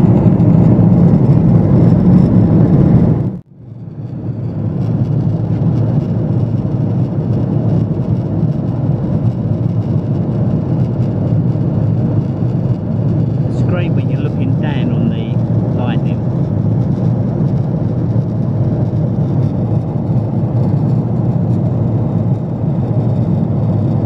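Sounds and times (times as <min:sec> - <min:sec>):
airplane cabin engine roar: 0:00.0 - 0:24.0.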